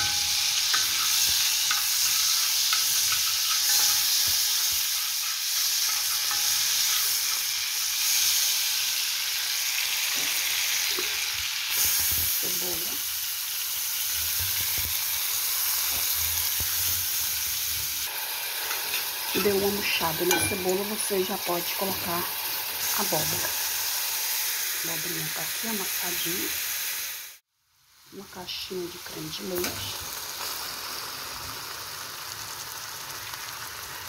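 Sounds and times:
hot fat sizzling in a pot: 0.0s - 34.0s
metal spoon knocking against pot: 20.3s - 20.8s.

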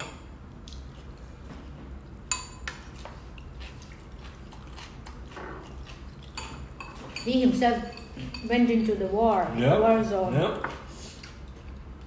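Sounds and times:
low room hum: 0.0s - 12.0s
cutlery clinking on ceramic bowls: 6.2s - 8.6s.

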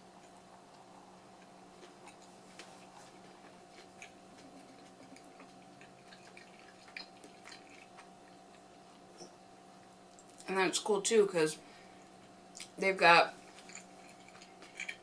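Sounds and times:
wet chewing: 0.2s - 10.5s, 13.4s - 15.0s.

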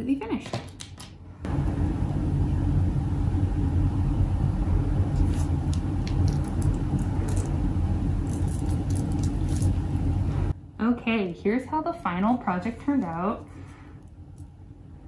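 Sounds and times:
low background rumble: 1.2s - 15.0s
glass beads and chain clicking: 8.2s - 9.8s.

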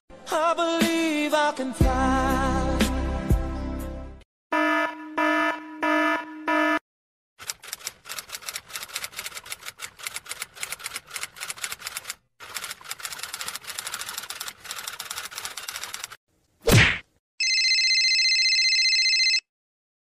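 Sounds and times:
typewriter key clicks: 7.4s - 16.2s.

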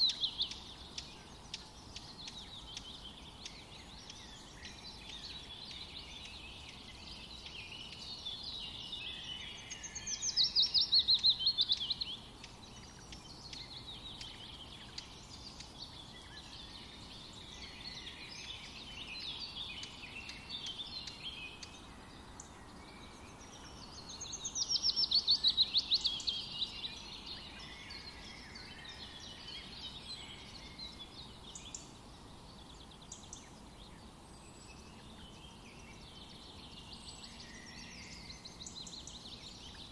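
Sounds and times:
birds chirping and singing: 0.0s - 39.9s.

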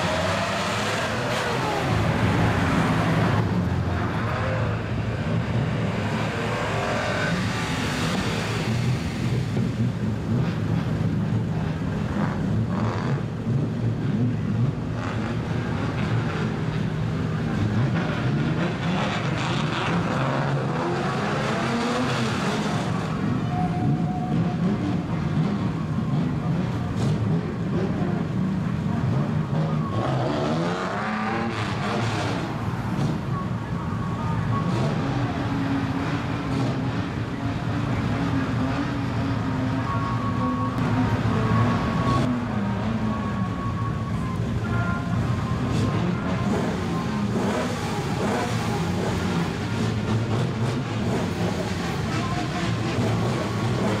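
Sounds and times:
car engines idling and revving: 0.0s - 54.0s
car engines idling: 32.3s - 54.0s.

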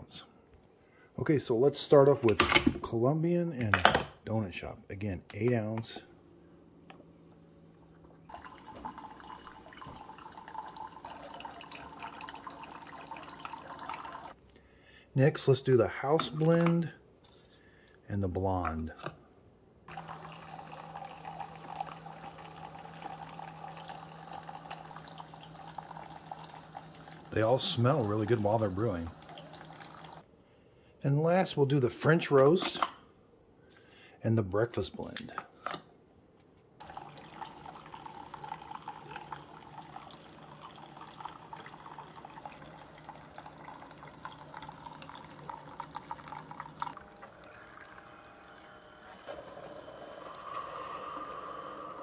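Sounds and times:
coffee streaming into glass mugs: 8.3s - 14.4s, 19.9s - 30.2s, 36.8s - 52.0s
low pump hum: 36.8s - 52.0s.

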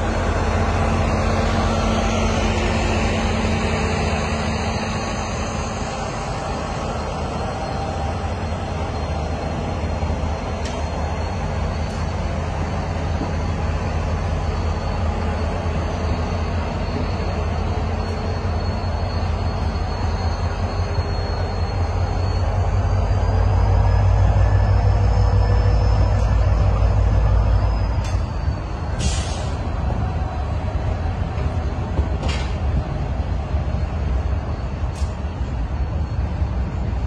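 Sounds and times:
high wheel squeal: 0.0s - 32.9s
train wheels rumbling on track: 0.0s - 37.0s.

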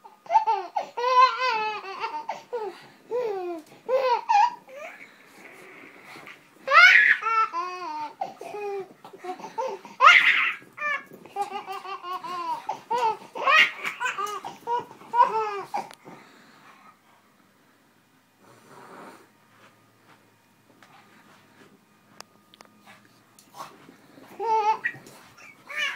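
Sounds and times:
baby laughing: 6.7s - 15.9s.

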